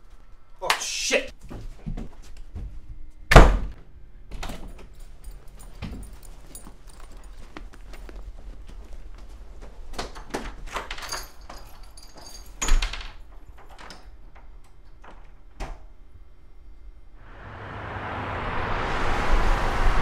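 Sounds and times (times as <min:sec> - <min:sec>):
rush of noise: 0:17.2 - 0:20.0.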